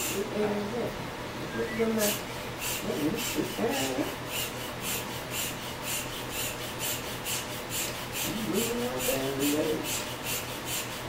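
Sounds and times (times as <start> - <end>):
hand pump hissing air: 1.8 - 11.0.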